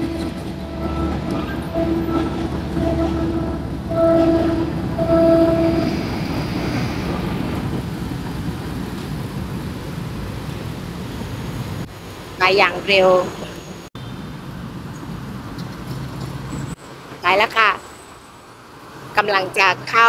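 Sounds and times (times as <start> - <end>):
train horn blasts: 0.0 - 6.3
motorbike and car traffic: 0.0 - 12.4, 13.1 - 20.0
diesel train rumbling: 0.0 - 17.4.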